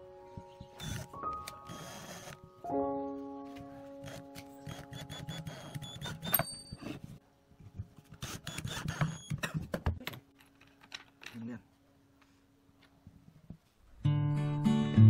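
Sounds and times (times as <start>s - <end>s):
cordless drill driving a screw: 0.8s - 2.4s, 4.0s - 6.4s
metallic clinks: 6.2s - 7.0s.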